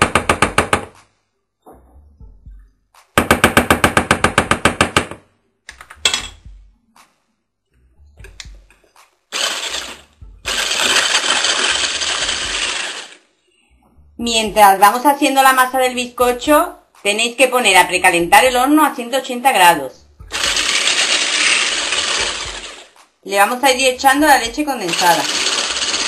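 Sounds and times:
electric hand blender running: 9.3s - 13.2s, 20.3s - 23.0s, 24.9s - 26.0s.

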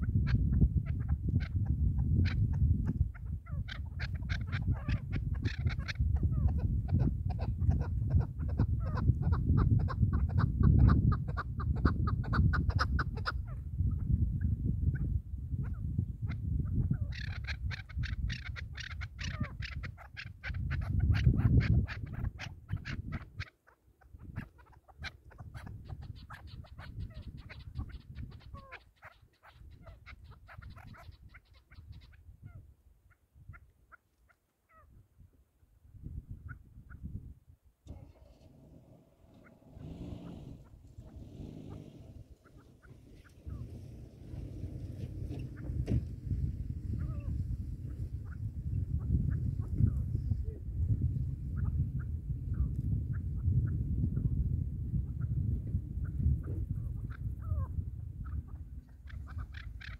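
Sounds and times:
partridges calling: 0.0s - 32.6s, 38.0s - 46.0s, 56.0s - 59.9s
wind rumbling on microphone: 0.0s - 33.9s, 34.7s - 59.9s.

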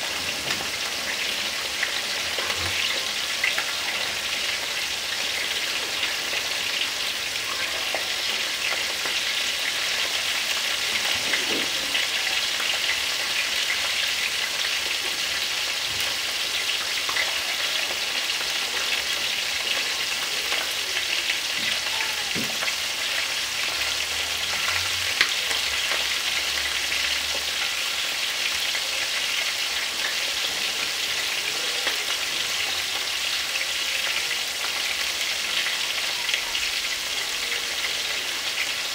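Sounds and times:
fish sizzling in oil: 0.0s - 38.9s.

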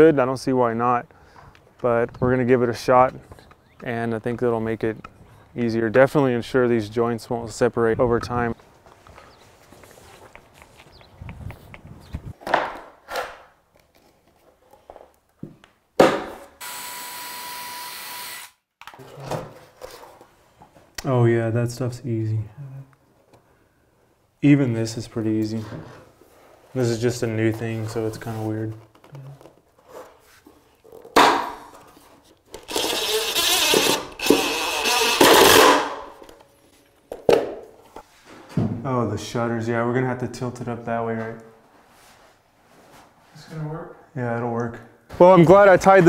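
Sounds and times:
cordless drill whine: 16.6s - 18.6s, 32.7s - 35.6s.

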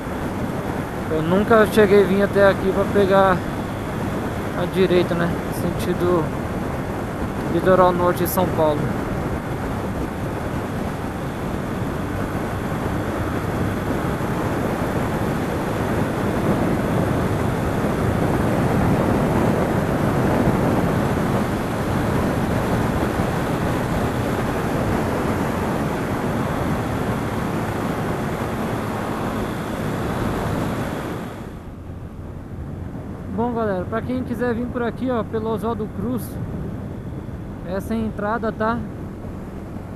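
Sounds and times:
road noise: 0.0s - 39.9s
wind rushing over microphone: 0.0s - 39.9s
motorcycle engine: 8.6s - 34.1s.

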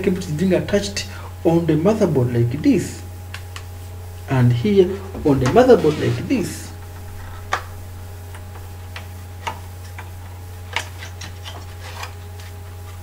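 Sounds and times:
low hum: 3.9s - 9.5s.

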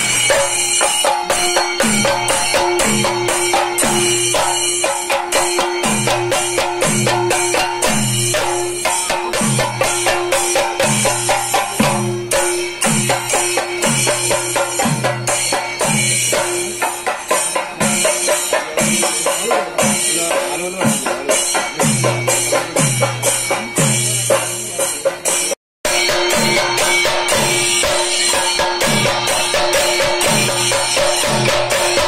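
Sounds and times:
bright metallic beat: 0.0s - 32.0s.

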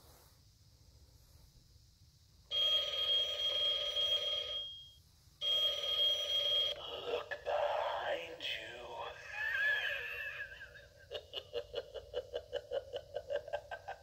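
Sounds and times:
recorded telephone ring: 2.5s - 7.1s.

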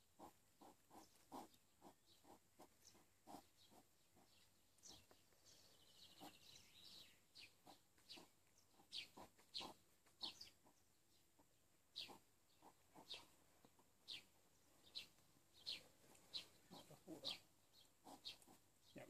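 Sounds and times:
hedgehog chewing food: 0.0s - 5.5s, 17.8s - 18.7s.

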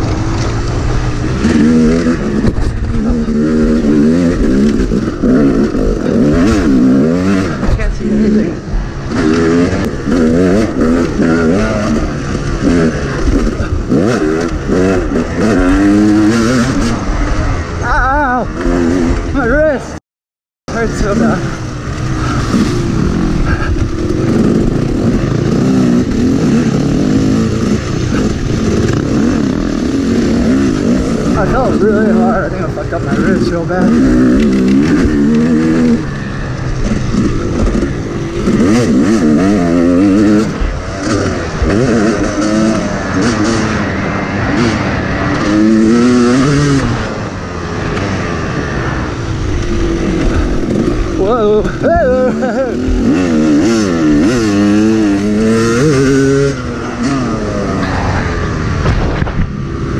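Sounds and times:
dirt bike engine revving: 0.0s - 20.0s, 20.7s - 59.9s
wind noise: 33.8s - 59.9s
wind rush on microphone: 57.8s - 59.9s.

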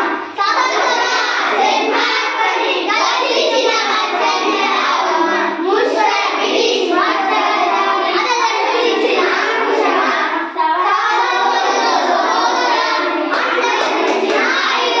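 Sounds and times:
children singing together: 0.0s - 15.0s.

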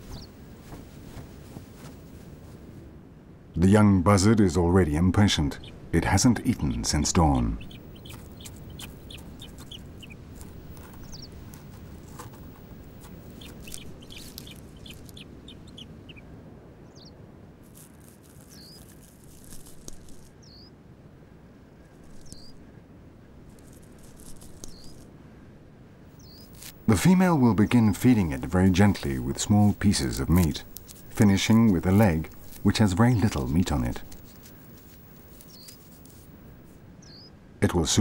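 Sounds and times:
bird chick begging peeps: 0.0s - 0.3s, 6.5s - 16.2s, 26.2s - 36.5s
low steady hiss: 0.0s - 38.0s.

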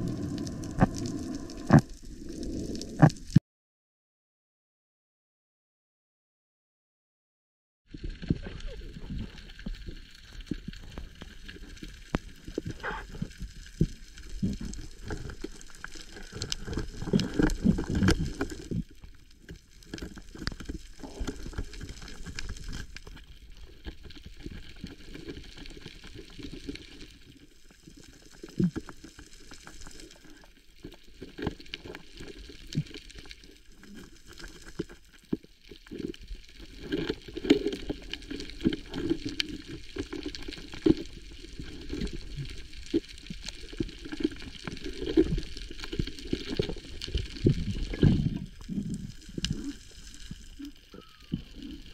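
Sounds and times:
underwater water sloshing: 0.0s - 3.4s.

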